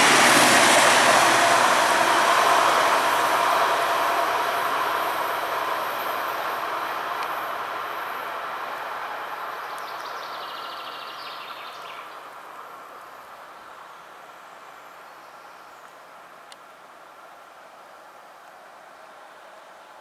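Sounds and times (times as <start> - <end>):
diesel train engine and wheels: 0.0 - 11.2.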